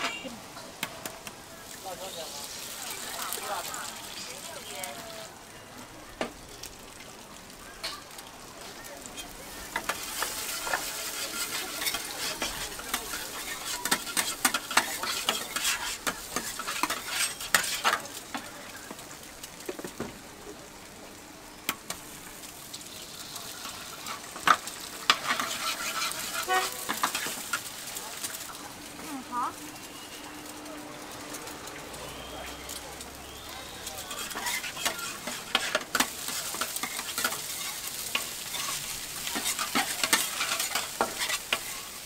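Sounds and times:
food sizzling on a griddle: 0.0s - 42.0s
metal spatula scraping a griddle: 9.2s - 18.1s, 23.2s - 28.4s, 33.7s - 42.0s.

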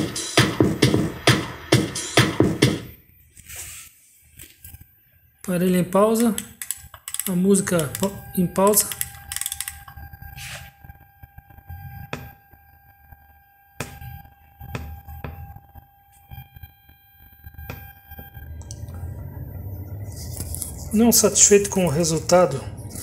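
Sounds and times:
speaker high whine: 2.8s - 23.0s
sharp clicks: 6.2s - 8.1s, 8.8s - 9.9s
low hum: 6.4s - 23.0s.

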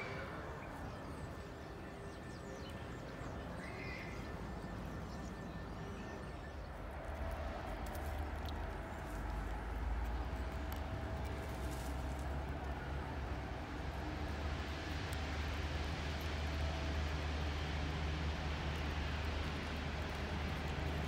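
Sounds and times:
distant engine rumble: 0.0s - 21.0s
faint steady hum: 0.0s - 21.0s
faint clicks: 7.2s - 12.9s.

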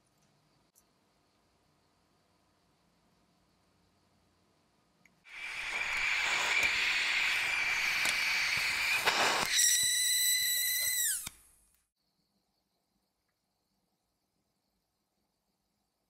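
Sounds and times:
flame whistling: 5.3s - 11.6s
gas torch flame hissing: 5.3s - 11.6s.

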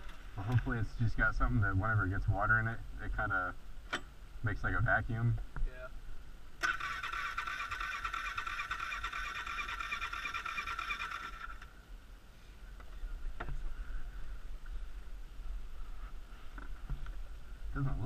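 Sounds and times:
electric starter cranking: 6.6s - 11.7s.

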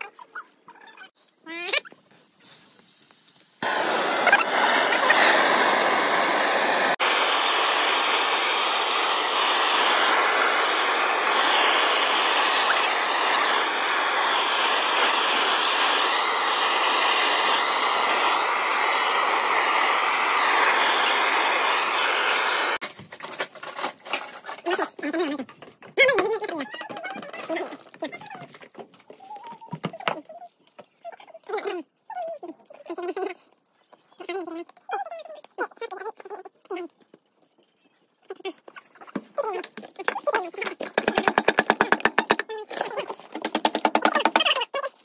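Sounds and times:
blowtorch flame hissing: 2.4s - 22.8s.

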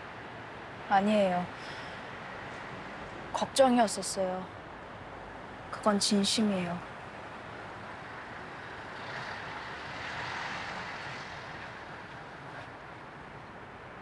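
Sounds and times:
city traffic hum: 0.0s - 14.0s
vehicle passing: 6.7s - 13.1s.

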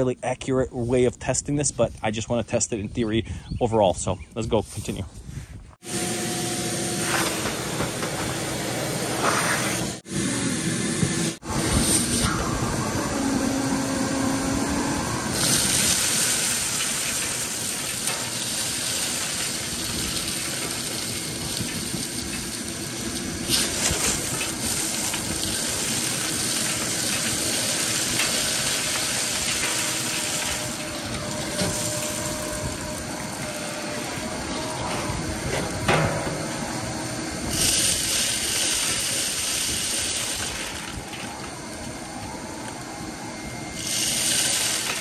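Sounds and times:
shop vacuums rushing hiss: 5.8s - 12.6s, 43.7s - 45.0s.

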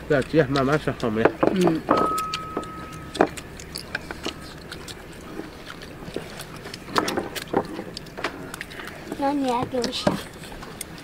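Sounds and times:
chewing: 0.0s - 11.0s
low background hum: 0.0s - 11.0s
chopsticks clicking on steel bowls: 0.1s - 4.8s.

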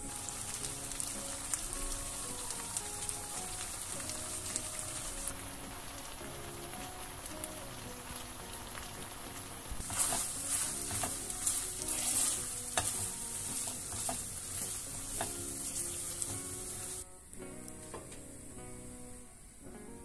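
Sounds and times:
chicken sizzling in frying pan: 0.0s - 17.0s
spatula scraping and tapping pan: 9.8s - 17.0s.

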